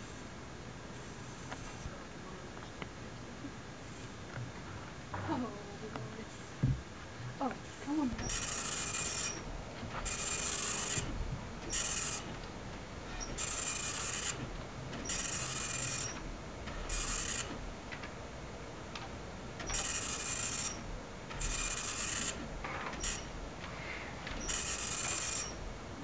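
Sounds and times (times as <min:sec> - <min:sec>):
machine rasping: 0:08.1 - 0:18.3, 0:18.9 - 0:26.0.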